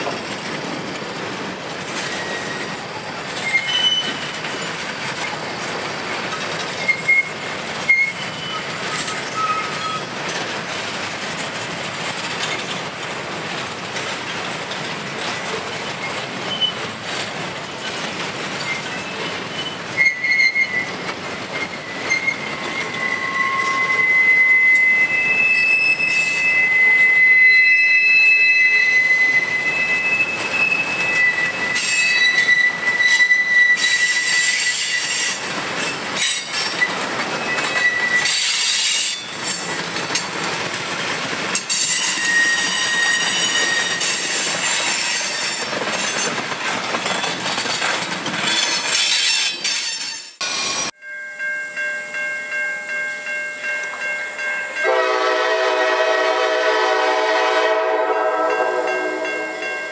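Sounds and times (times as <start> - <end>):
train knocks: 0.0 - 23.8
train wheels rumbling on rail: 0.0 - 51.0, 52.9 - 59.9
high wheel squeal: 2.0 - 10.1, 15.7 - 16.9, 18.6 - 39.9, 41.7 - 46.3.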